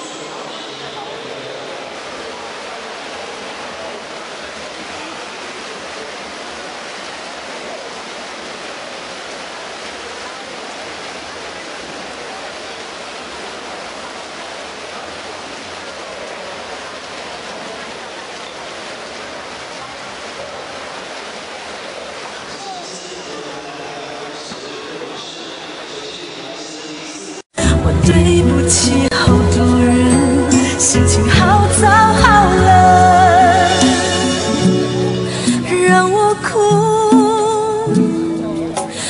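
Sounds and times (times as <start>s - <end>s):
echoing crowd voices: 0.0s - 39.0s
water splashing: 0.2s - 23.6s.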